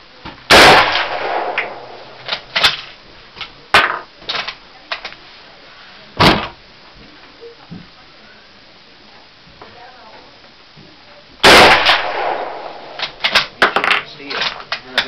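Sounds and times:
rifle shot: 0.5 - 2.9, 11.4 - 14.6
rifle bolt clacking: 12.9 - 15.0.

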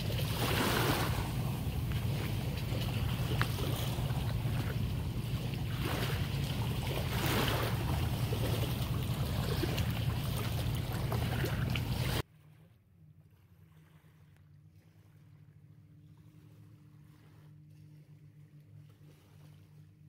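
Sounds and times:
wind buffeting microphone: 0.0 - 12.2
small waves lapping: 0.0 - 20.0.

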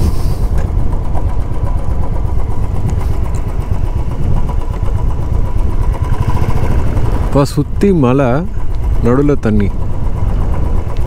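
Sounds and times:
motorcycle engine rumbling: 0.0 - 11.0.

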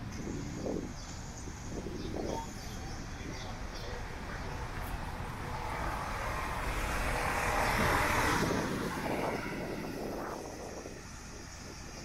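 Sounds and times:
vehicle passing by: 4.5 - 12.0.

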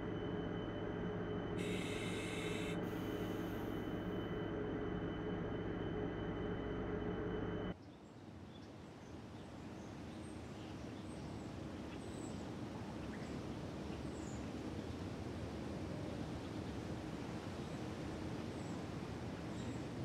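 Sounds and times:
hum of held tones: 0.0 - 7.7.

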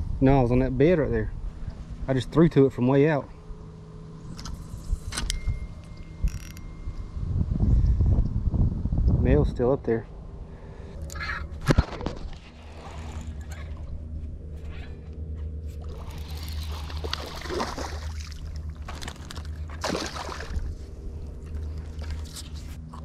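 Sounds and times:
steady low hum: 0.0 - 23.0
fish splashing in water: 15.8 - 22.2.

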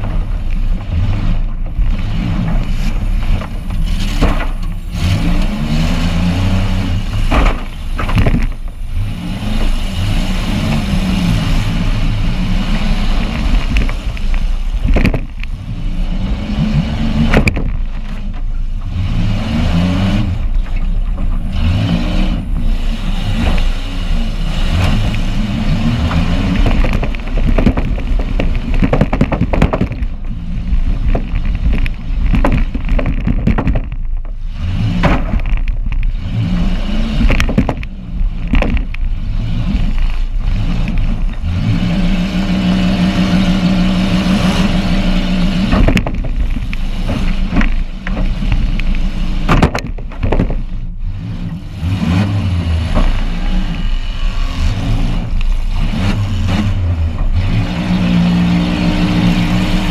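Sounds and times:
car body bangs and clatter: 0.0 - 5.5, 6.6 - 9.0, 13.1 - 15.5, 17.2 - 18.9, 24.8 - 36.1, 37.2 - 39.1, 45.6 - 51.0
car engine revving: 0.0 - 59.9.

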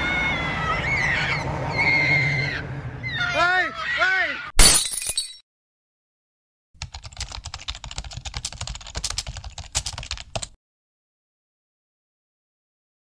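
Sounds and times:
computer keyboard typing: 6.8 - 10.6.

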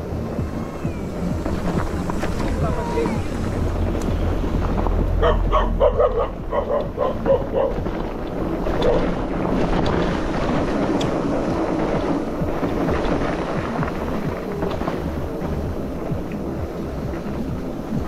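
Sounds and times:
wind buffeting microphone: 0.0 - 18.0
dog barking: 5.2 - 7.9, 8.8 - 9.2.

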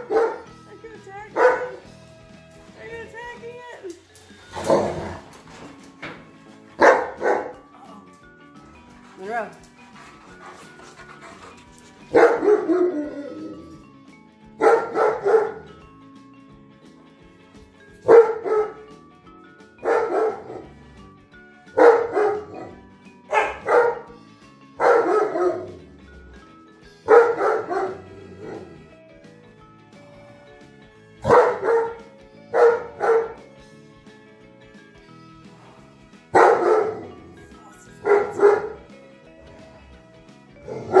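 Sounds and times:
dog barking: 0.0 - 0.5, 1.4 - 1.8, 6.8 - 7.7, 12.1 - 13.1, 14.6 - 15.7, 18.0 - 18.9, 19.8 - 20.8, 21.8 - 24.1, 24.8 - 25.8, 27.0 - 28.7, 31.2 - 33.4, 36.3 - 37.2, 37.9 - 39.0, 40.7 - 41.0.

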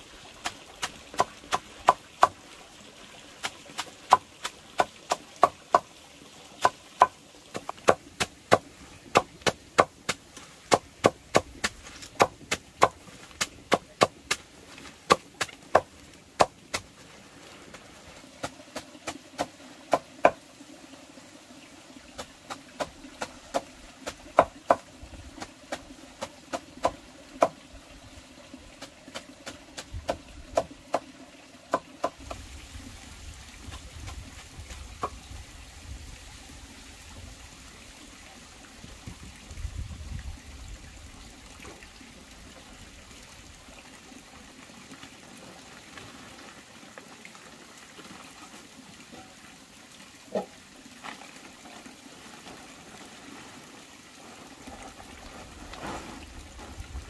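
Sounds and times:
cleaver chopping greens: 6.6 - 14.4.

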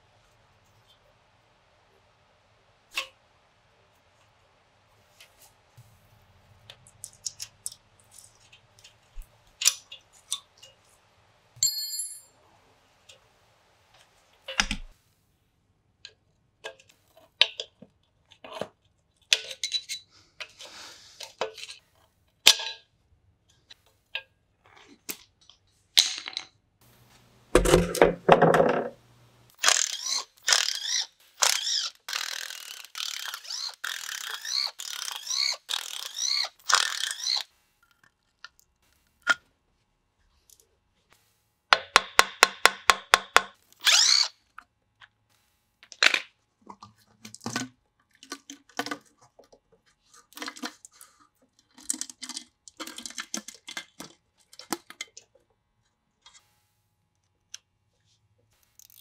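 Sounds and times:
short metallic ring: 11.6 - 12.4
impact driver hammering: 41.8 - 43.5.

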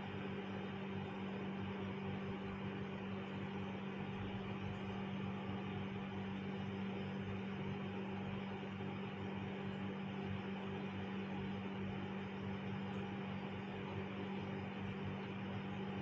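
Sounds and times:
steady hum with hiss: 0.0 - 16.0.

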